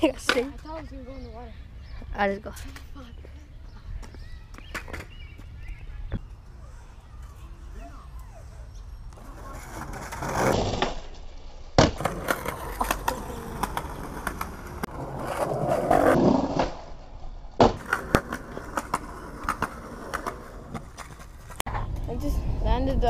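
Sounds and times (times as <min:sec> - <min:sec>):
skateboard clacking on ground: 0:00.0 - 0:00.8, 0:11.8 - 0:16.3
skateboard wheels rolling on concrete: 0:00.0 - 0:23.0.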